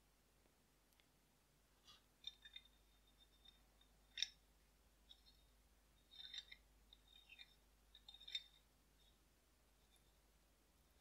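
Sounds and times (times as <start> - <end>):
revolver parts clicking: 6.0 - 8.6.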